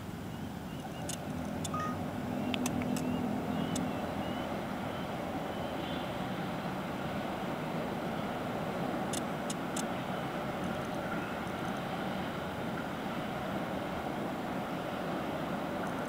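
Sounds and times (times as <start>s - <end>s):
distant train rumble: 0.0s - 16.0s
brief clicks: 0.8s - 1.8s, 2.5s - 3.1s.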